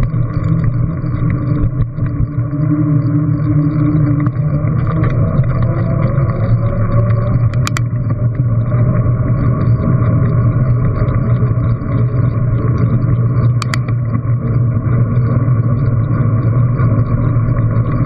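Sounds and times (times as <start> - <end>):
tyre and road noise: 0.0 - 18.0
sharp click: 7.1 - 7.9, 13.5 - 13.9.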